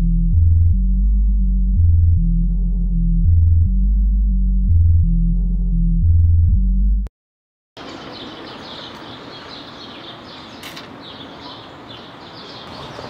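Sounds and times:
background street hum: 7.8 - 13.0
small birds chirping: 7.8 - 13.0
brief click: 10.6 - 10.9.

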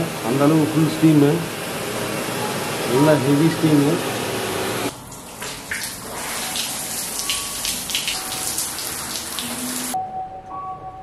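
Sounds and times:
water jets spraying on body: 2.9 - 10.0.

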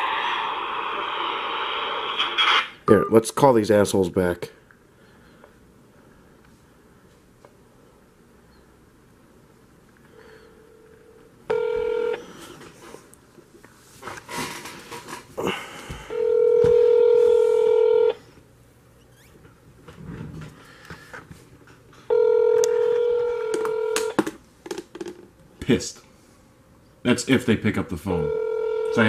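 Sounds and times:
phone ringback tone: 10.6 - 12.4, 16.1 - 18.2, 22.1 - 24.2, 28.2 - 29.0.

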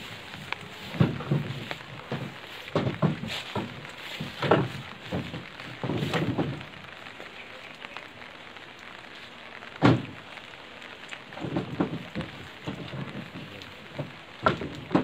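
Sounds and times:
steady rain: 0.0 - 15.0
firewood dropped into truck bed: 0.4 - 6.6.

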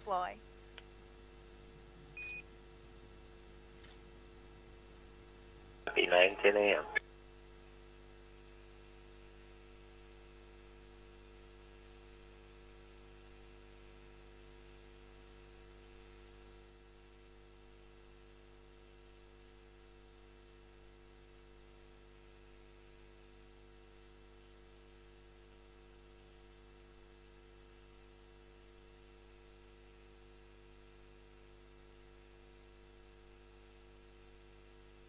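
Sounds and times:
line hiss and electrical hum: 0.0 - 7.0.

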